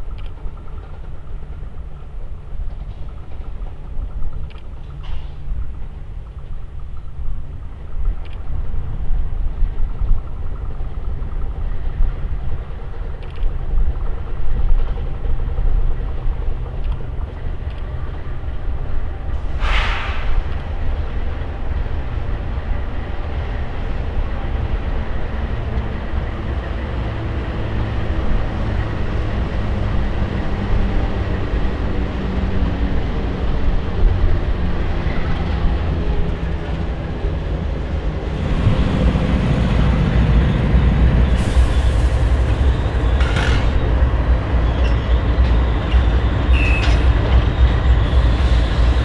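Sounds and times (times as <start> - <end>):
diesel locomotive engines rumbling: 0.0 - 49.0
loaded freight cars rolling: 34.2 - 49.0
high squeal: 40.5 - 49.0.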